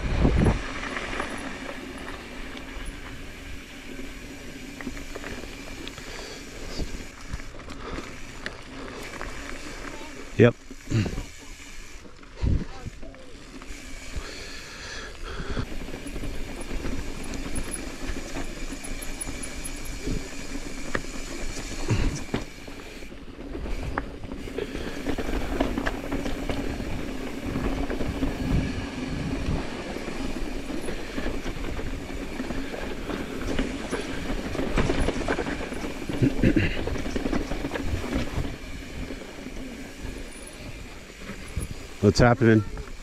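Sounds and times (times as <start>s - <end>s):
mountain bike rolling and rattling: 0.0s - 43.0s
wheels knocking on bumps: 15.8s - 42.0s.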